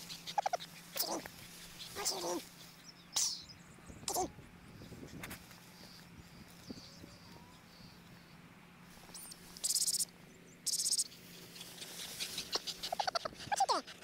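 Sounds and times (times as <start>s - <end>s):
insect buzzy stridulation: 9.0s - 11.1s
faint bird chirps: 9.0s - 13.2s.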